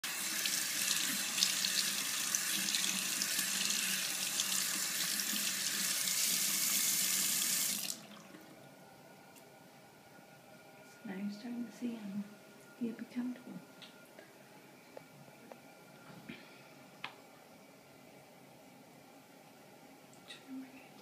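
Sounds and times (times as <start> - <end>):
water running from tap: 0.0 - 8.4.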